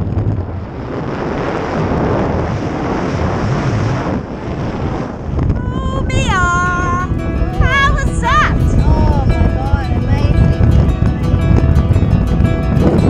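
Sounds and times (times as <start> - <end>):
wind buffeting microphone: 0.0 - 13.0
music with gliding notes: 5.6 - 13.0.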